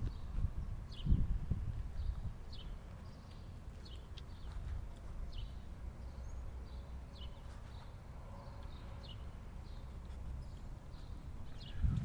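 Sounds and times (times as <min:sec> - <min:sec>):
wind on microphone: 0:00.0 - 0:02.8, 0:11.4 - 0:12.0.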